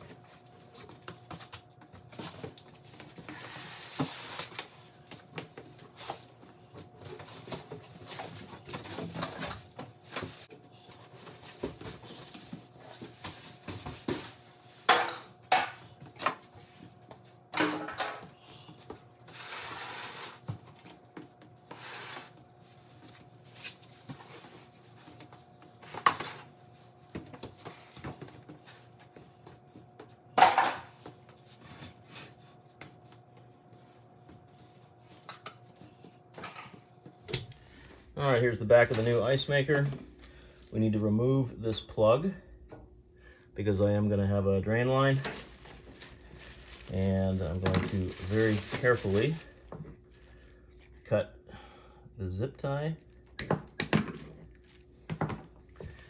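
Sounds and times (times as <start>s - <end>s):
faint steady hum: 0.0s - 56.0s
cardboard rustling and scraping: 0.1s - 4.9s, 19.2s - 28.9s, 45.1s - 49.7s.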